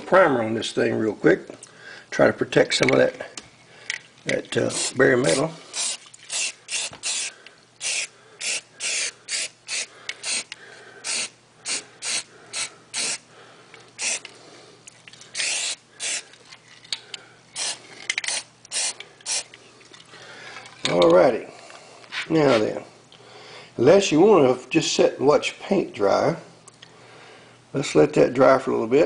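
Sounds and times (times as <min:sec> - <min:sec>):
aerosol spray can hissing bursts: 0:04.7 - 0:13.2, 0:14.0 - 0:14.3, 0:15.4 - 0:16.2, 0:17.6 - 0:19.5.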